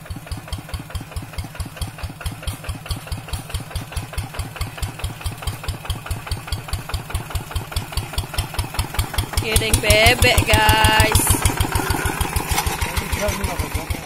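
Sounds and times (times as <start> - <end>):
diesel engine chugging: 0.0 - 14.0.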